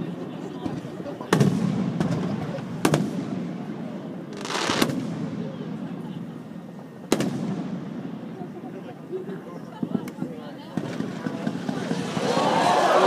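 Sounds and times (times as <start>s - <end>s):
firework booms: 1.3s - 3.7s, 4.3s - 6.0s, 7.0s - 8.4s
firework hiss and crack: 4.3s - 5.4s, 10.8s - 13.0s.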